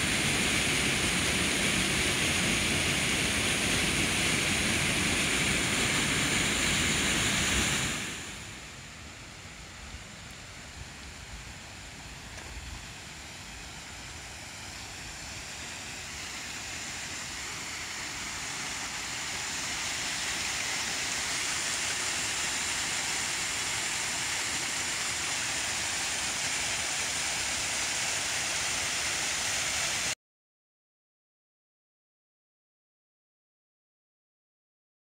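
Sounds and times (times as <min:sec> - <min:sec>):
waterfall pouring into pool: 0:00.0 - 0:08.7, 0:11.7 - 0:30.2.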